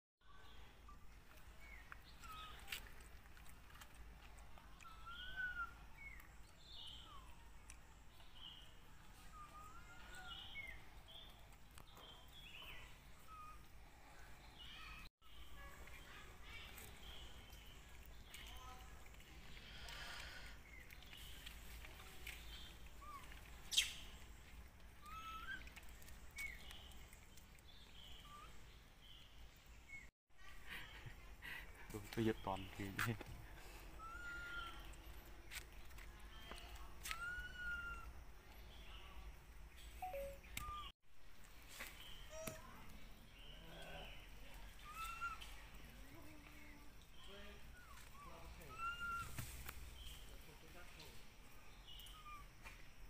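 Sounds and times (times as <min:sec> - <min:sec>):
birds chirping: 0:04.4 - 0:40.9, 0:41.6 - 0:53.0
whistled animal calls: 0:47.8 - 0:49.4.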